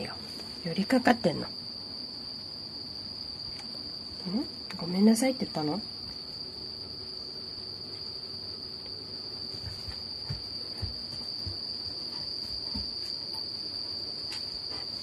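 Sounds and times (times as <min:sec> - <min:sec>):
dog paws thumping on tiled floor: 0:08.9 - 0:15.0.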